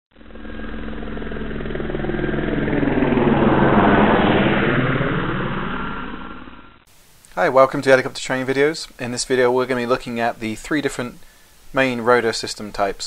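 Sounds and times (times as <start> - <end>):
helicopter engine and rotor: 0.1 - 6.9.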